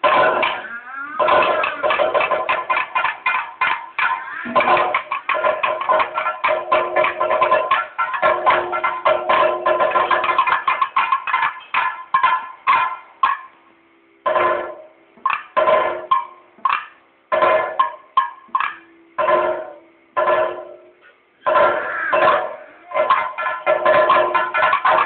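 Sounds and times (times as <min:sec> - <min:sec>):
ringing metallic beats: 0:00.0 - 0:25.0.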